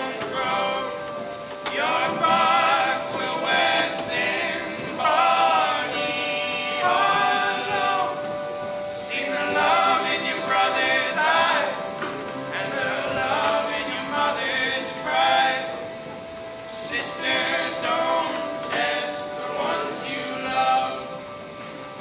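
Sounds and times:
accordion: 0.0 - 22.0
acoustic guitar: 0.0 - 22.0
men singing: 0.0 - 22.0.

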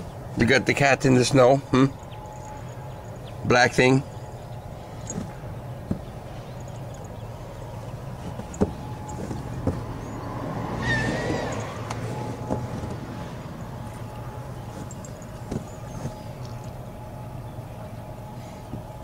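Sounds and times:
distant road traffic rumble: 0.0 - 19.0.

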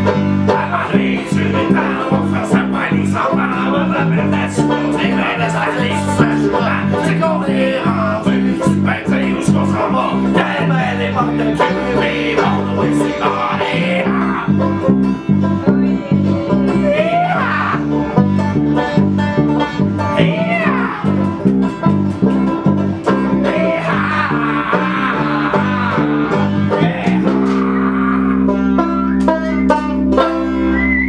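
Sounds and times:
banjo guitar and bass playing: 0.0 - 31.0
loud shouted singing: 0.5 - 14.6, 16.8 - 17.9, 20.2 - 21.3, 23.3 - 28.5.

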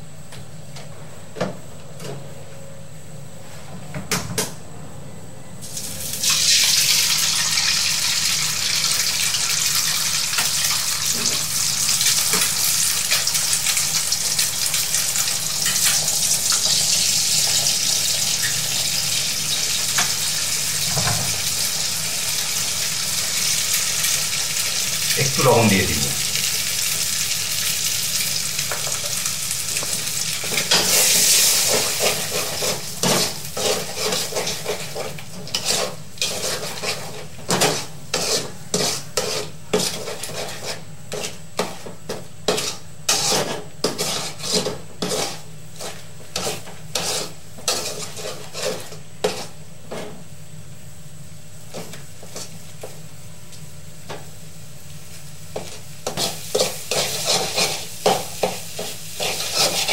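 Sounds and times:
eggs sizzling in oil: 5.6 - 50.3, 54.0 - 59.9
metal spatula scraping a wok: 30.6 - 41.8, 42.5 - 50.2, 55.6 - 59.9.

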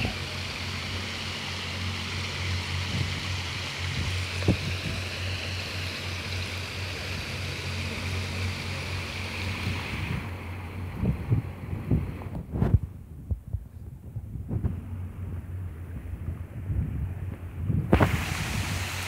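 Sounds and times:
water splashing into pond: 0.0 - 12.4, 17.8 - 19.0
steady low hum: 0.0 - 19.0.

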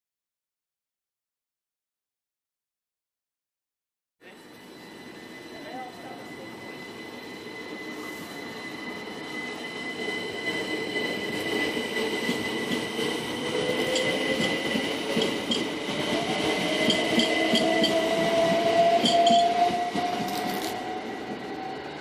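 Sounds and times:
train wheels clicking on rail joints: 9.5 - 20.9.

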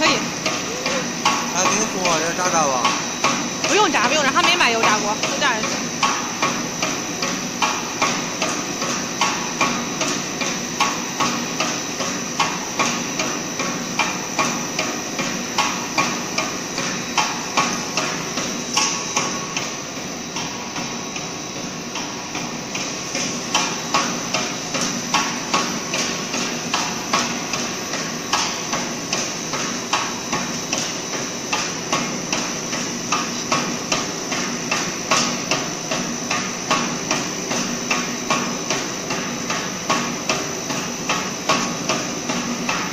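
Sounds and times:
cutting machine knocking: 0.0 - 7.0
machinery hum: 0.0 - 42.9.

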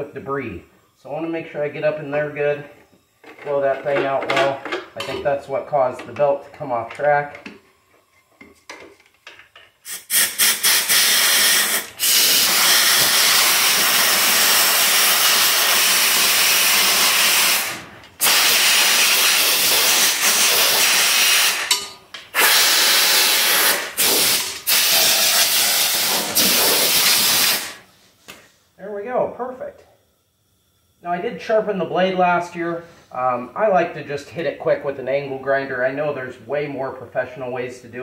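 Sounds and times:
compressed air blow gun hissing: 9.8 - 21.7, 22.3 - 27.9.

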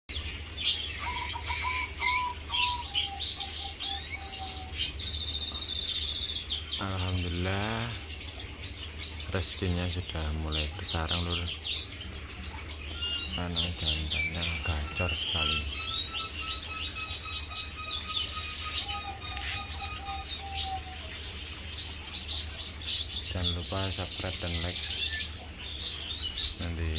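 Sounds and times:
birds chirping and twittering: 0.1 - 26.9
low steady hum: 0.1 - 26.9
buzzy bird trill: 0.2 - 26.9
whistled bird notes: 0.2 - 26.9.

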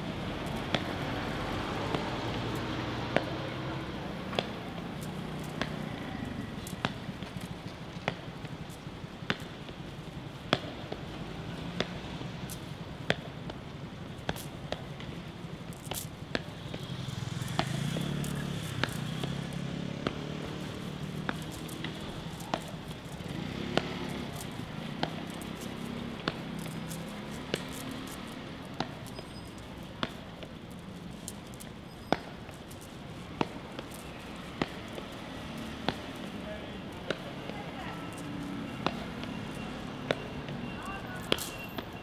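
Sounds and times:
low city rumble: 0.0 - 42.0
shoe footsteps on hard ground: 0.0 - 42.0.

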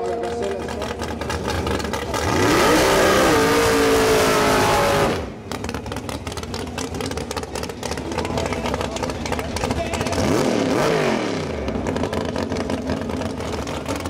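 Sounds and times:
engine crackling and popping: 0.0 - 14.0
car engine revving hard: 0.8 - 5.5, 10.0 - 14.0.

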